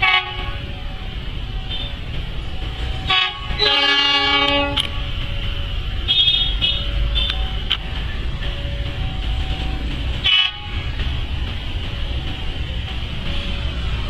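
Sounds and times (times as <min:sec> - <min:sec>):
train horn: 0:00.0 - 0:00.8, 0:03.0 - 0:07.4, 0:10.2 - 0:10.9
low train rumble: 0:00.0 - 0:14.0.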